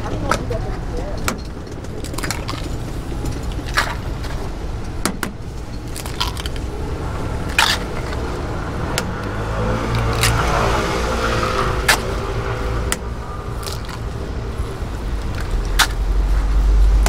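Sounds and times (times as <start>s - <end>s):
street traffic rumble: 0.0s - 17.0s
eggs cracking: 5.8s - 6.7s, 13.6s - 14.1s.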